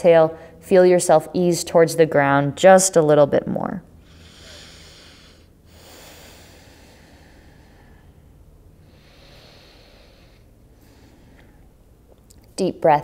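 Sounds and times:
low room hum: 0.0 - 13.0
woman breathing through nose: 4.0 - 11.8.

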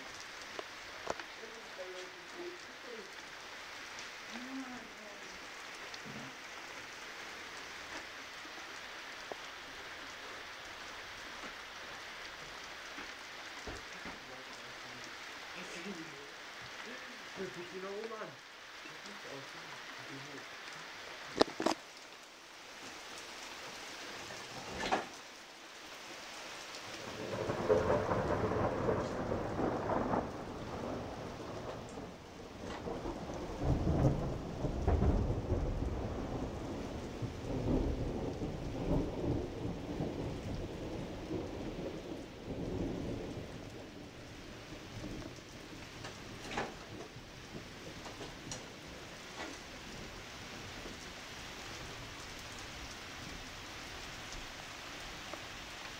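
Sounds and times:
heavy rain hissing: 0.0 - 55.9
rolling thunder: 27.0 - 51.0.

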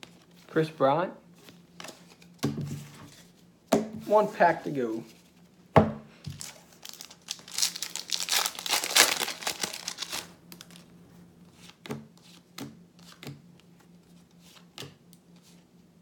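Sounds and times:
foil wrapper tearing and crinkling: 6.4 - 10.8.

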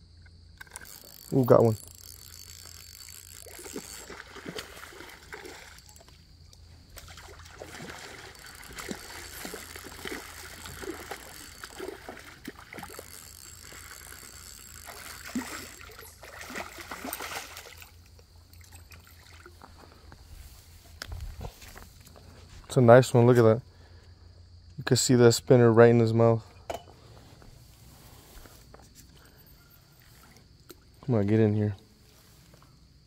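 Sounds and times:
water splashing and sloshing: 0.6 - 22.6
fish thrashing in water: 0.7 - 19.6.

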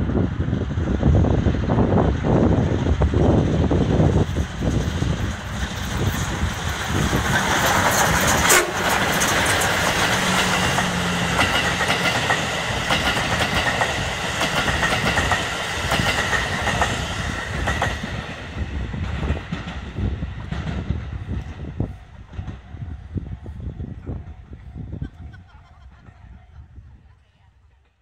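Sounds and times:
steam locomotive passing: 0.0 - 27.2
train wheels clacking over rail joints: 3.8 - 23.0
steam whistle toot: 8.5 - 8.9.

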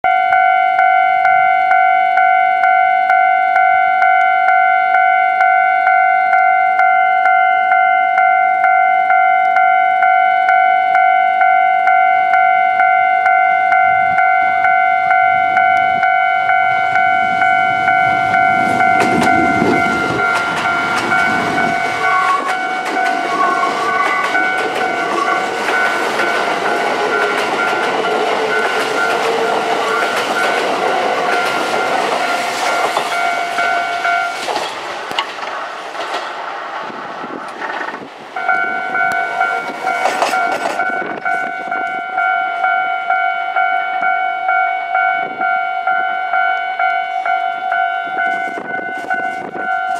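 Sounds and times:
level crossing warning bell: 0.0 - 36.4, 38.1 - 49.9
train wheels clattering: 18.0 - 41.6.

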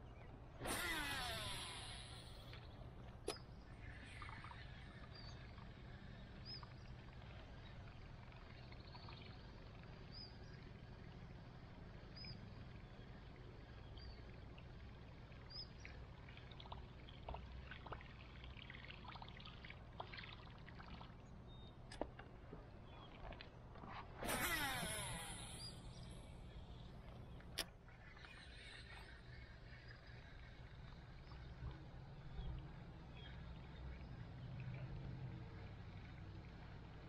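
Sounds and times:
faint low hum: 0.0 - 37.0
water lapping: 12.8 - 37.0.

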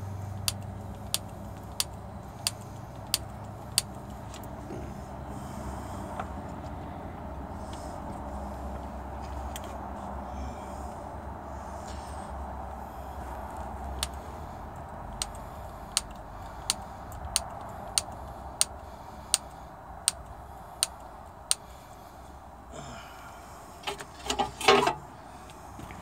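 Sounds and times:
grease gun clicking: 0.4 - 4.2, 14.8 - 18.8.

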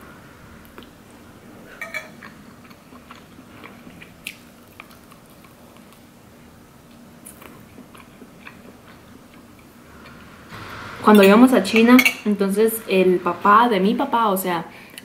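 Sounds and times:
person chewing shrimp: 1.7 - 6.2, 6.9 - 10.2.

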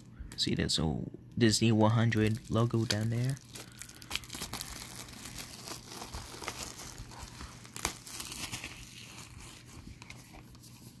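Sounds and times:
plastic wrap crinkling and tearing: 2.0 - 11.0
plastic wrap snapping: 2.2 - 9.0.

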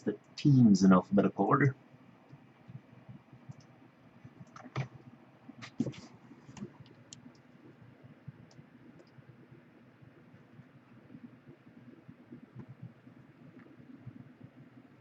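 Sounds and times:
computer mouse clicks: 2.3 - 3.7, 4.3 - 5.0, 8.4 - 9.2.

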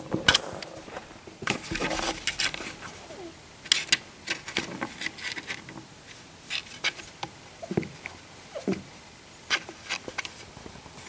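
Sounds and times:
kitten scratching cardboard: 0.4 - 7.2, 8.6 - 10.8.

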